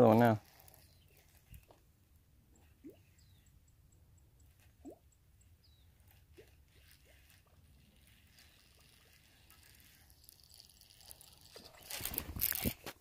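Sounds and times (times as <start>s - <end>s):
soft ticks: 3.4s - 6.2s.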